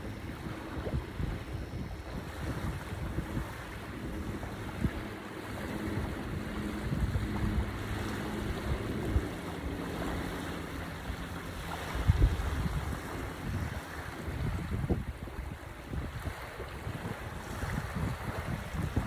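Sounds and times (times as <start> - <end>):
small waves washing on sand: 0.0 - 19.0
wind buffeting microphone: 0.0 - 19.0.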